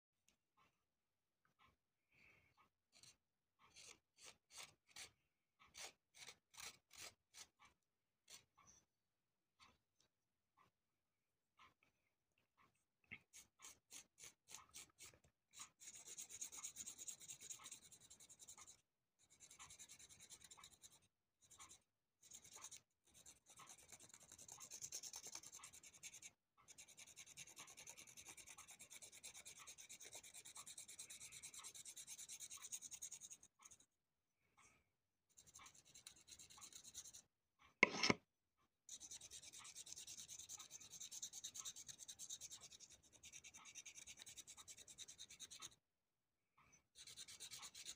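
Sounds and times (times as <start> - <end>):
knife scraping root skin: 5.7 - 7.5, 37.8 - 38.2.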